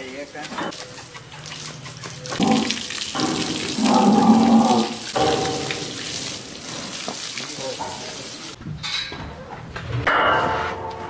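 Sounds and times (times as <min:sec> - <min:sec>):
water spraying from a hose: 0:00.0 - 0:08.6.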